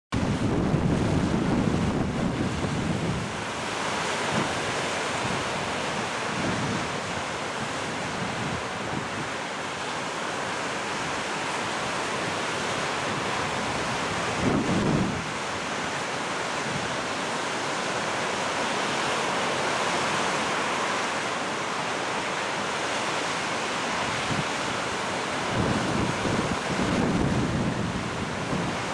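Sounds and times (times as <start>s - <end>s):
wind buffeting microphone: 0.2s - 3.5s, 4.3s - 9.4s, 13.1s - 15.4s, 25.5s - 28.9s
small waves breaking on sand: 0.2s - 28.9s.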